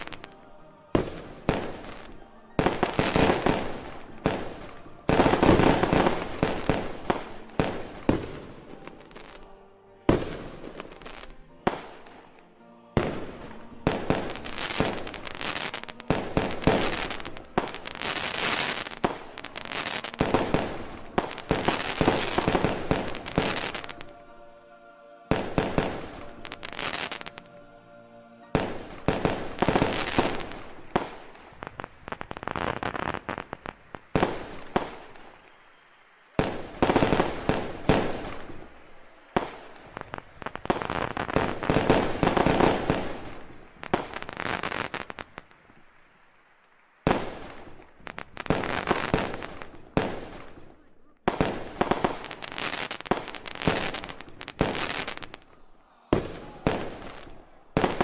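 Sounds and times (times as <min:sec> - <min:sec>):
fireworks bursting with bangs: 0:00.0 - 0:12.2, 0:13.0 - 0:24.3, 0:25.3 - 0:27.5, 0:28.5 - 0:58.0
fireworks crackling: 0:00.0 - 0:24.5, 0:25.3 - 0:27.6, 0:28.5 - 0:58.0.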